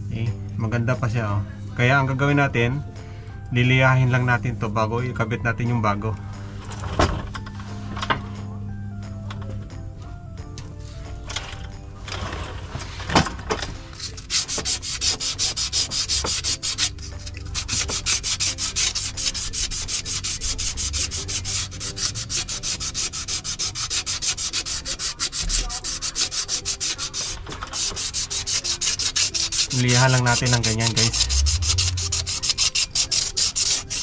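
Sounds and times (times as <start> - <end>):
sandpaper rubbing on metal: 13.8 - 34.0.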